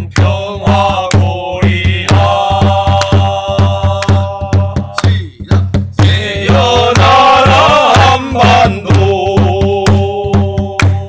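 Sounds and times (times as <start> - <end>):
barrel drum beating: 0.0 - 11.0
person chanting: 0.0 - 11.0.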